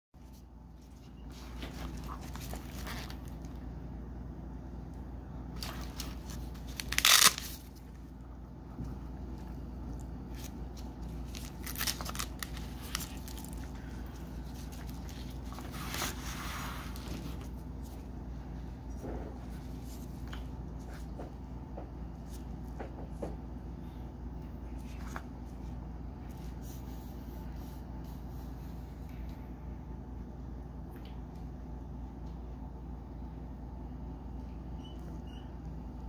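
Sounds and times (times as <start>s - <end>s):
steady low hum: 0.2s - 36.0s
nylon fabric rustling: 0.8s - 3.4s, 5.6s - 7.7s.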